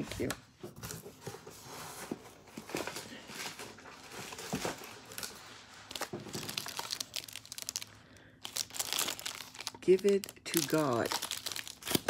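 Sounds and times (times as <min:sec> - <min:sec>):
gift wrapping crinkling: 0:01.9 - 0:12.0.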